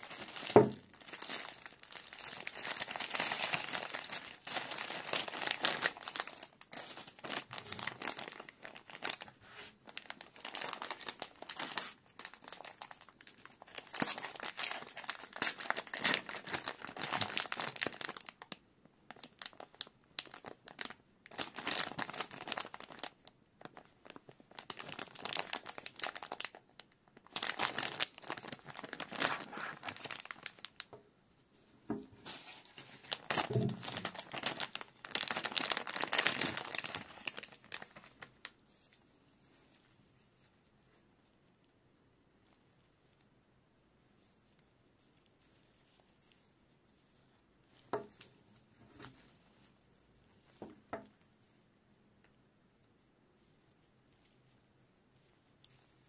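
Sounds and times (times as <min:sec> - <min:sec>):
plastic mailer bag tearing: 0:00.0 - 0:18.4, 0:24.5 - 0:30.8, 0:32.4 - 0:38.2
plastic packaging crinkling: 0:00.0 - 0:31.0, 0:31.9 - 0:40.5.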